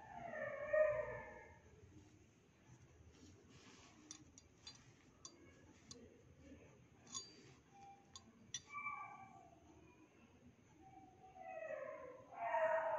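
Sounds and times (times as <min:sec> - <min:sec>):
small metal objects clinking: 0:04.1 - 0:05.4, 0:07.1 - 0:08.7.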